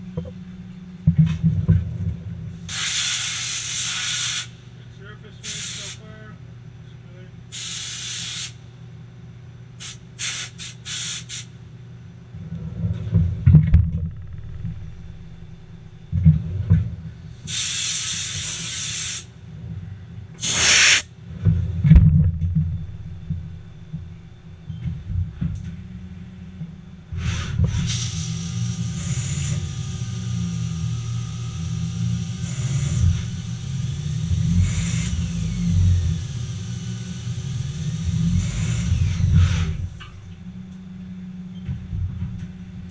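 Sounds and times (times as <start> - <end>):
low machine hum: 0.0 - 2.7, 11.6 - 18.7, 19.3 - 42.9
short hissing blasts: 2.7 - 4.6, 5.4 - 6.1, 7.5 - 8.6, 9.8 - 11.6, 17.5 - 19.3, 20.4 - 21.1, 27.2 - 39.9.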